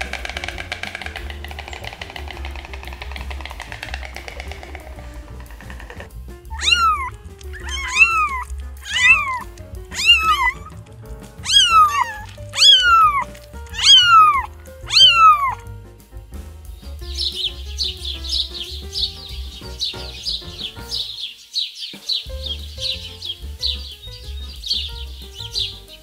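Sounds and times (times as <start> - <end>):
animal calling: 0.0 - 10.8, 11.4 - 15.6
background music: 0.0 - 26.0.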